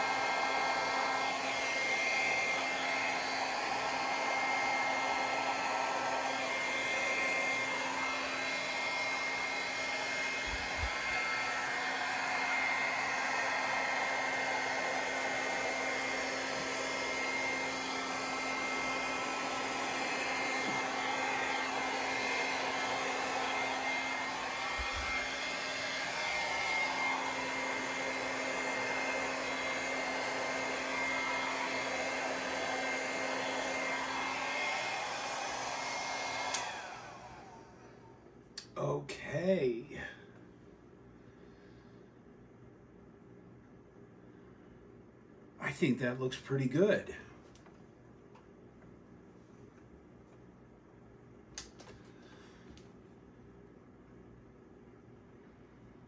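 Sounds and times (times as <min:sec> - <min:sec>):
electric air blower whining: 0:00.0 - 0:38.1.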